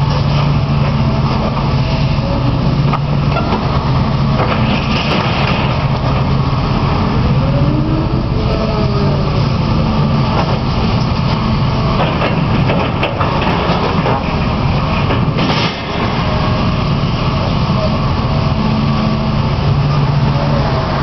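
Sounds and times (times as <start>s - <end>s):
excavator diesel engine running: 0.0s - 21.0s
metal debris knocking and clattering: 4.4s - 5.9s.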